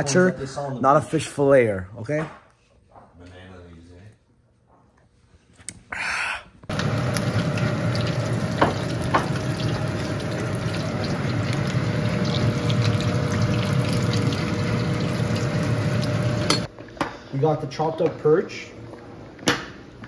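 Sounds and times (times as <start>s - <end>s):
fish deep-frying in oil: 6.7s - 16.7s.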